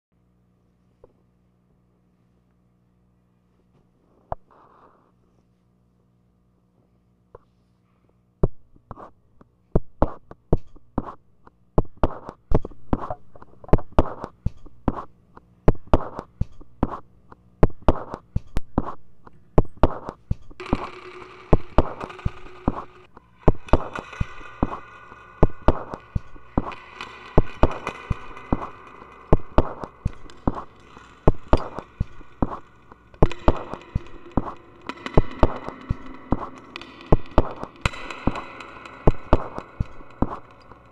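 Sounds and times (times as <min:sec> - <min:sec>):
sustained electronic tones and hiss: 0:12.6 - 0:14.3, 0:20.6 - 0:40.9.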